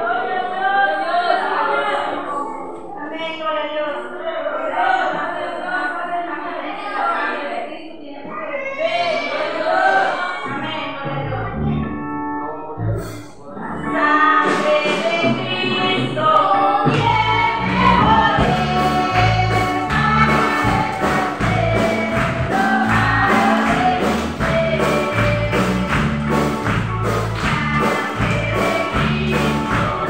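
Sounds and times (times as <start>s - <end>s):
group of voices singing: 0.0s - 2.6s, 4.0s - 11.8s, 13.0s - 30.0s
bass line: 10.5s - 14.5s, 15.2s - 30.0s
steady percussion beat: 16.9s - 30.0s.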